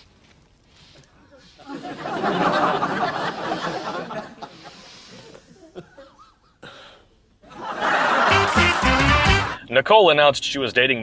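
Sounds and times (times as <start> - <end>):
studio audience laughing: 1.6 - 6.4, 7.4 - 9.6.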